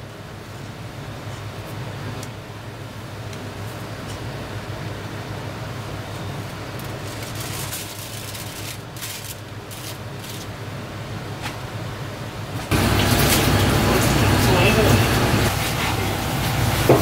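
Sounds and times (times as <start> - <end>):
kitchen low hum: 0.0 - 17.0
aluminium foil crinkling: 6.1 - 10.6.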